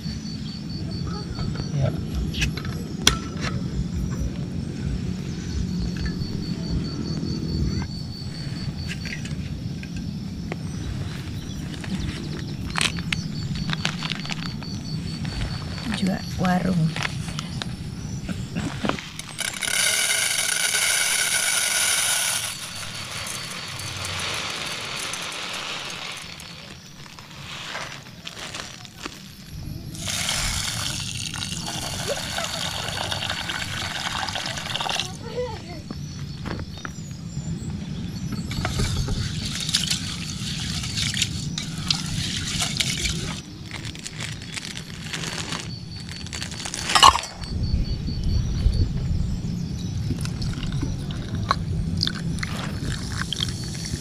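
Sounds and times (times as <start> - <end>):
low rumble: 1.9 - 27.1
ice cubes clinking in steel mug: 19.2 - 26.5, 46.6 - 47.4
rice pouring into metal pot: 19.4 - 26.7, 30.0 - 35.1.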